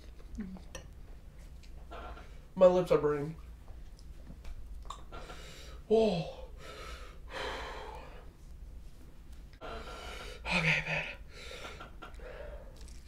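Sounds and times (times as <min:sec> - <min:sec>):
man breathing hard: 0:05.2 - 0:08.3, 0:09.6 - 0:12.8
man groaning: 0:05.9 - 0:06.5.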